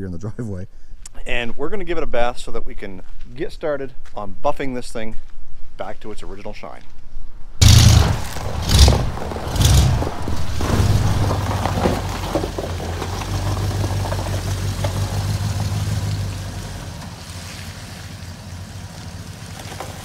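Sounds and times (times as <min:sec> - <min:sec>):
pickup truck engine running: 0:07.6 - 0:20.0.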